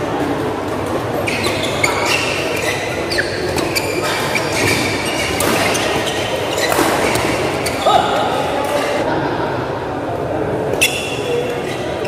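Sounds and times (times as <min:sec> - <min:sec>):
background murmur: 0:00.0 - 0:12.0
shoes squeaking on court: 0:01.2 - 0:09.0.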